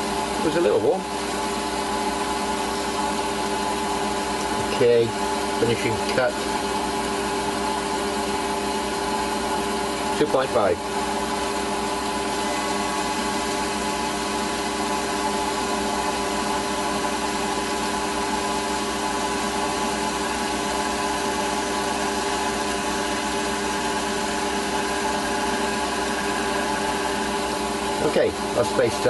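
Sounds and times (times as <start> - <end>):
lathe motor whining: 0.0 - 29.0.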